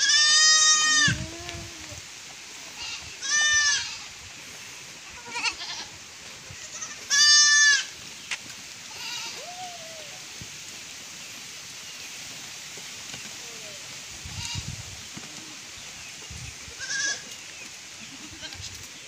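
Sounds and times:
goats bleating: 0.0s - 2.0s, 2.7s - 4.2s, 5.0s - 7.9s, 8.8s - 9.6s, 16.8s - 17.3s, 18.0s - 18.7s.

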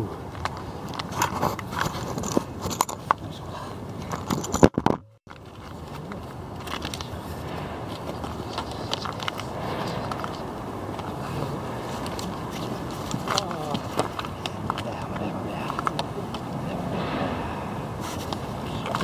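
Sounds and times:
microphone handling noise: 7.1s - 14.6s
sharp knock: 16.9s - 18.0s.

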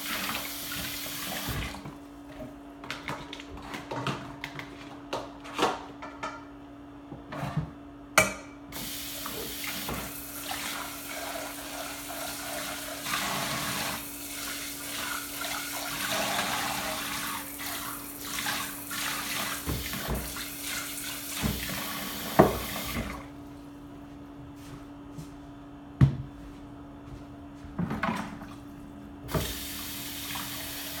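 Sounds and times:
faucet running: 0.0s - 1.6s, 8.8s - 23.1s, 29.3s - 31.0s.

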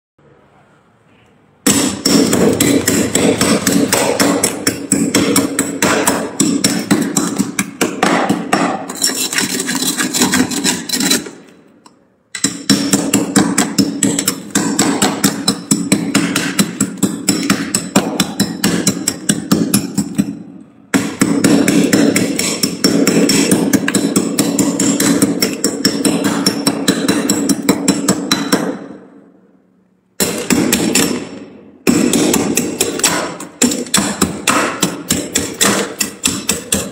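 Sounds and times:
metal spoon scraping frost: 8.8s - 11.6s.

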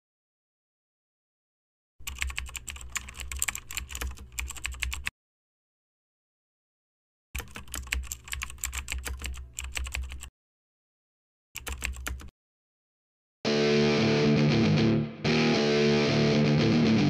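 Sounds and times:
keyboard typing clicks: 2.0s - 5.1s, 7.4s - 10.3s, 11.6s - 12.3s.

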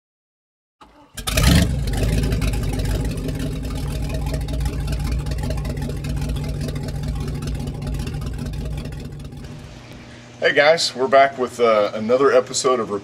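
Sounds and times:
motorboat engine idling: 1.1s - 10.5s.

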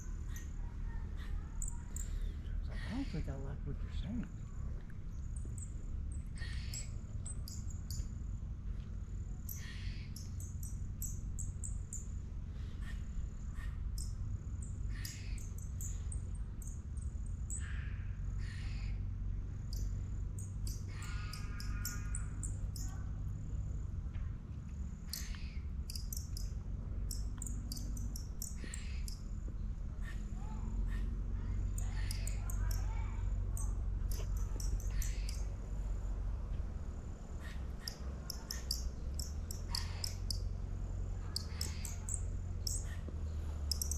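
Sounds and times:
steady low rumble: 0.0s - 43.9s
high bird-like chirps: 37.4s - 40.4s, 41.3s - 43.0s, 43.6s - 43.9s.

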